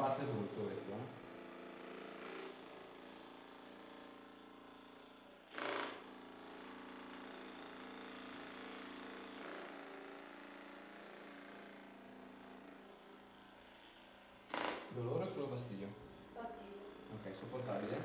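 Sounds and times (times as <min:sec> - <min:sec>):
massage gun tapping buzz: 0:00.0 - 0:02.8, 0:05.5 - 0:13.0, 0:14.5 - 0:15.6, 0:16.2 - 0:18.0.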